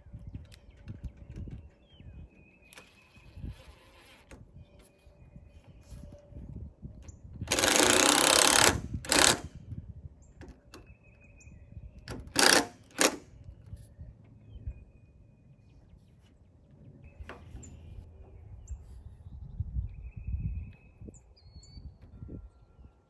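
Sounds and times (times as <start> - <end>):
cordless drill driving screws: 7.4 - 9.5, 12.1 - 13.3.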